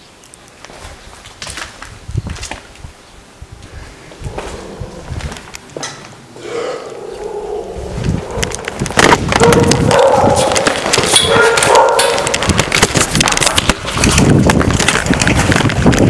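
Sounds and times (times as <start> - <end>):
dogs barking: 6.4 - 12.6
camera jostling: 8.0 - 16.0
rapid running footsteps: 8.0 - 16.0.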